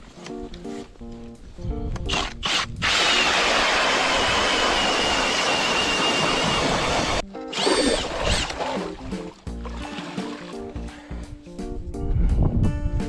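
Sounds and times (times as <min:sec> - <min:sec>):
ice auger grinding whir: 0:02.1 - 0:08.9.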